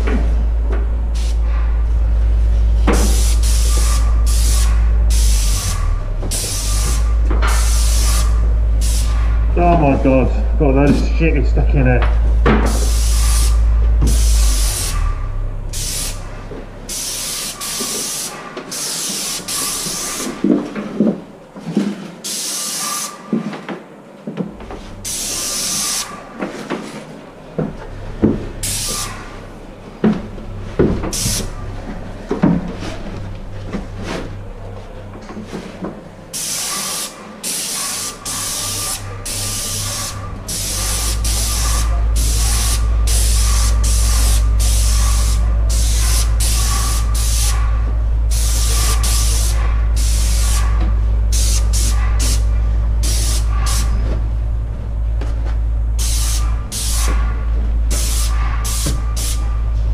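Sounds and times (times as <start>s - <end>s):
steady low hum: 0.0s - 22.2s, 23.8s - 59.9s
paint spray gun hissing: 2.9s - 9.2s, 12.7s - 15.0s, 15.7s - 16.3s, 16.9s - 20.5s, 22.3s - 23.2s, 25.0s - 26.2s, 28.6s - 29.3s, 31.1s - 31.6s, 36.3s - 47.6s, 48.3s - 50.7s, 51.3s - 52.4s, 53.0s - 54.0s, 56.0s - 57.2s, 57.9s - 59.5s.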